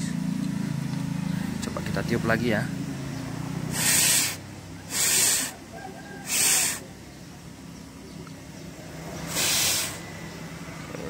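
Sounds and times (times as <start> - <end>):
person blowing puffs of breath: 3.7 - 5.6, 6.2 - 6.9, 9.3 - 10.0.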